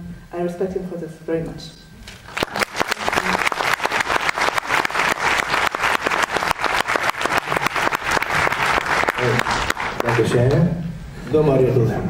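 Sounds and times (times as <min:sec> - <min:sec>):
audience applauding: 0:02.1 - 0:10.6.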